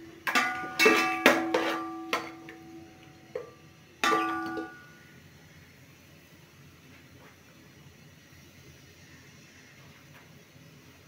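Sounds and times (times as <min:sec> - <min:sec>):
metal spoon knocking on pot: 0:00.3 - 0:02.6, 0:03.4 - 0:04.9.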